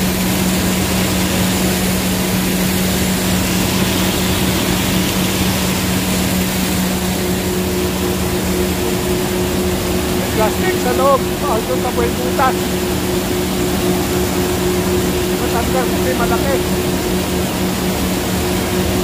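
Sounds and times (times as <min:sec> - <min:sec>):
shredder motor hum: 0:00.0 - 0:19.0
water spraying: 0:00.0 - 0:19.0.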